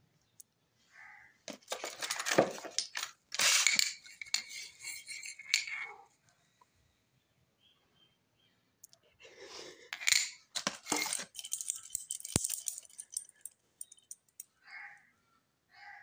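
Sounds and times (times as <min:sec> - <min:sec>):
metal watch bracelets clinking: 0:02.8 - 0:05.9, 0:10.0 - 0:14.5.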